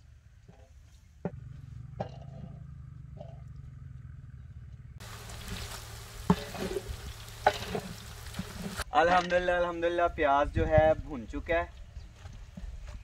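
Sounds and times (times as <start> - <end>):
low steady hum: 1.3 - 8.8
onions sizzling in hot oil: 5.0 - 8.8
wooden spatula scraping a pot: 5.0 - 8.8.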